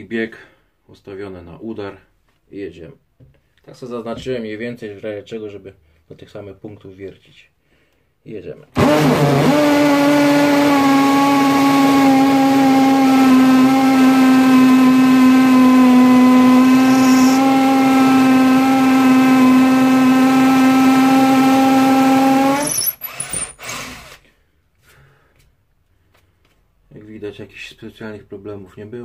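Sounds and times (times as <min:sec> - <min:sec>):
hammer drill boring into brick: 0:16.1 - 0:24.2.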